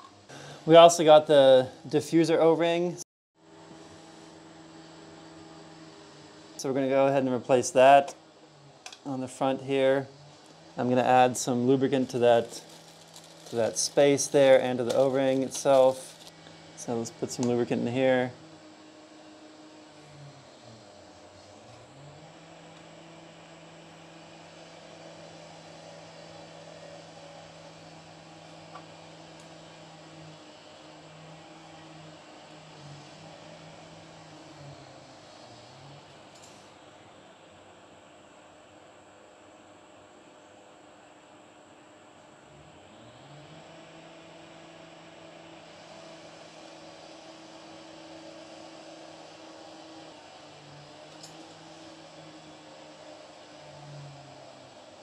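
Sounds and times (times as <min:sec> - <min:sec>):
machine humming: 0:00.0 - 0:37.5.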